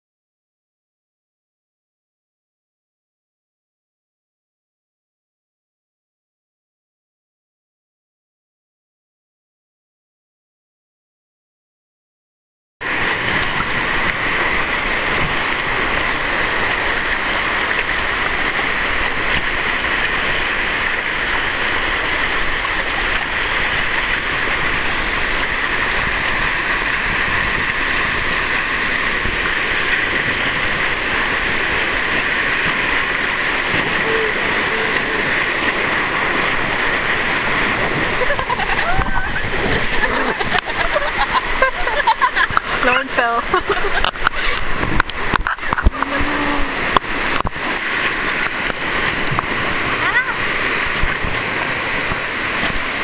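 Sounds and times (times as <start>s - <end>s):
river rapids rushing: 12.8s - 53.0s.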